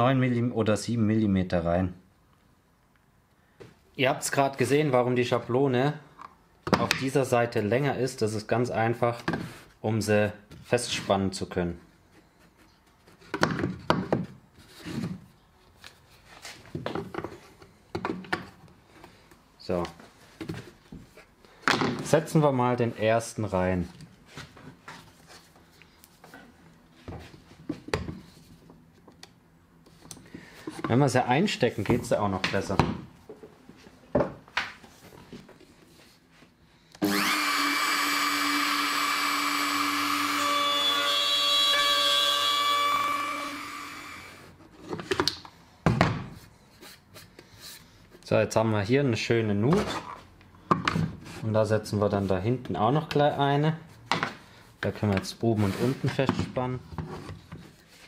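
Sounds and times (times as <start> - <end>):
router whining cutting wood: 37.0 - 44.5.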